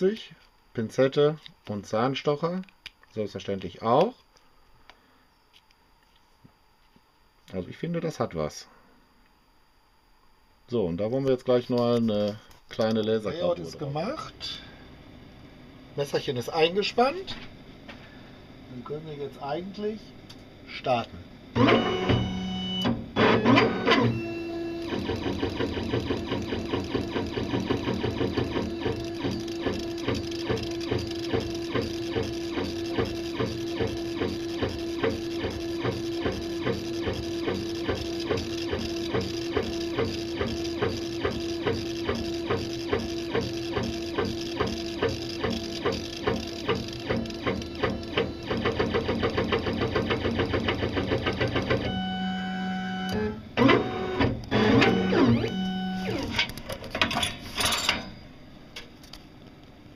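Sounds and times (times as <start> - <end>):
laser engraver running: 18.8 - 56.5.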